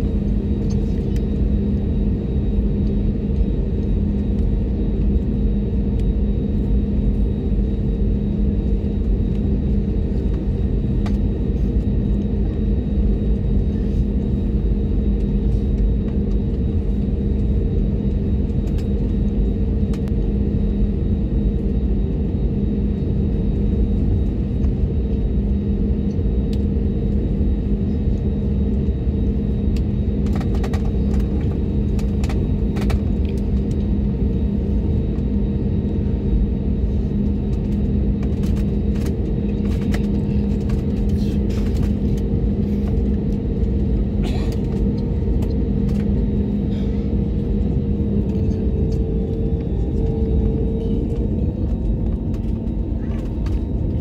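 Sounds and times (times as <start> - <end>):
aircraft engine drone: 0.0 - 54.0.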